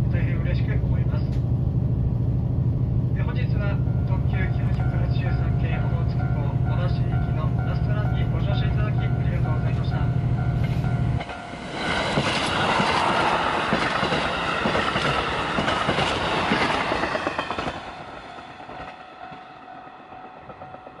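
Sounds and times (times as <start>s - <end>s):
diesel train passing: 0.0s - 21.0s
wheels clacking over rail joints: 11.2s - 19.0s.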